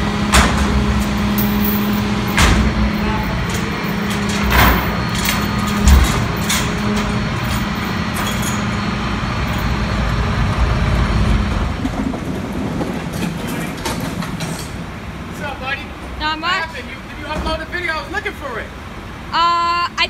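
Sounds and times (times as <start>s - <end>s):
garbage truck engine running: 0.0s - 20.0s
metal knocks: 0.3s - 8.7s.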